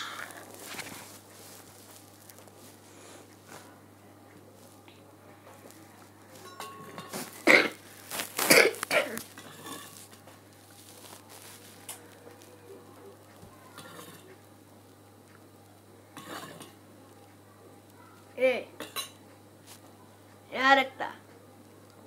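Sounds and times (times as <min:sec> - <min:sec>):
spoon clinking in steel bowl: 0:06.4 - 0:07.3
person coughing: 0:07.4 - 0:07.8, 0:08.4 - 0:09.2.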